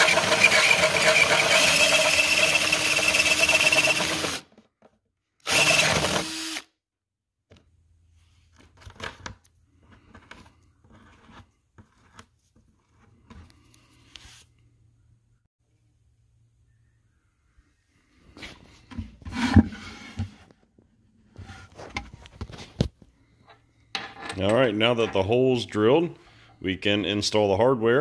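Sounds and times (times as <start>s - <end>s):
power drill boring through plastic: 0.0s - 4.5s, 5.4s - 6.7s.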